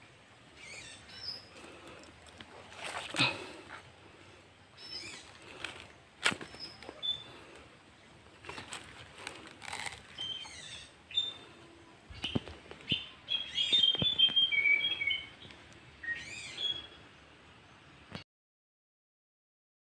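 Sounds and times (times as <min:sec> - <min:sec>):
birds chirping and whistling: 0:00.6 - 0:01.9, 0:04.8 - 0:07.6, 0:10.0 - 0:17.2
footsteps through dry leaves: 0:02.6 - 0:03.4.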